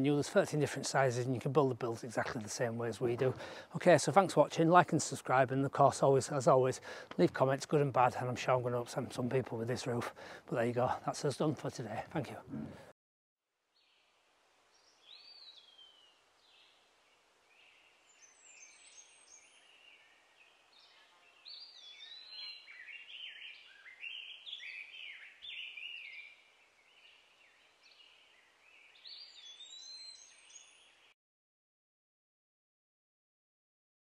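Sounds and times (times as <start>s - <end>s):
birdsong chirps and whistles: 14.7s - 16.8s, 17.5s - 31.2s.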